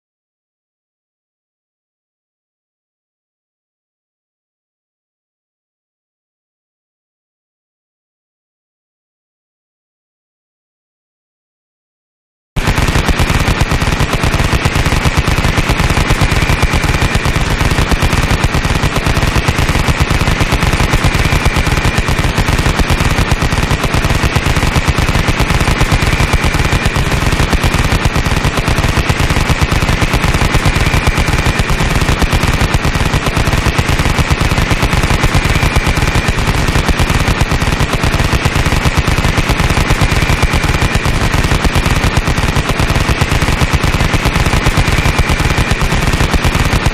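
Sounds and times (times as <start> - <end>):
machine gun firing: 12.6 - 46.9.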